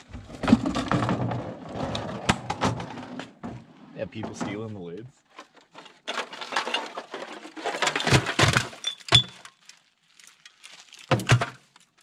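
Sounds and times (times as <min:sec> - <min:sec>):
trash clattering into metal can: 0:00.2 - 0:03.5, 0:05.8 - 0:09.5, 0:11.0 - 0:11.8.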